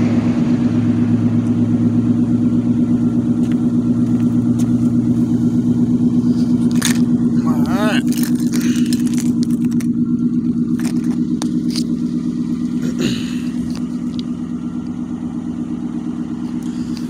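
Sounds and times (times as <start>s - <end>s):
car engine idling: 0.0s - 17.0s
sharp clicks and scrapes: 6.4s - 7.1s, 8.0s - 10.0s.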